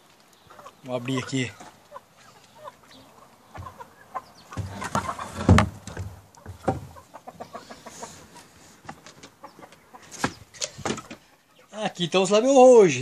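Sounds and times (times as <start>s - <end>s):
chickens clucking: 0.0s - 12.3s
wooden coop door scraping: 3.6s - 3.9s, 4.5s - 7.0s, 7.9s - 11.3s.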